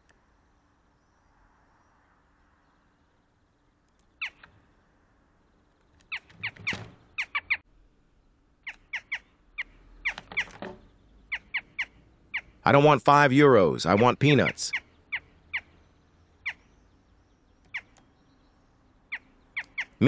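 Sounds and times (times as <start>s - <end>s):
jackdaws calling: 0.0s - 20.0s.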